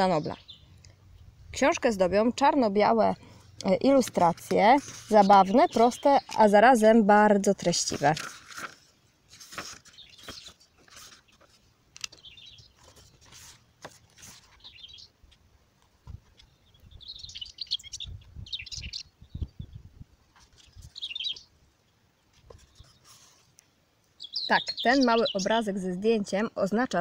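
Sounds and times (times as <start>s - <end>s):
small birds chirping: 0.0s - 27.0s
book pages rustling: 3.8s - 6.6s, 7.6s - 16.5s, 20.3s - 21.0s, 22.3s - 23.6s.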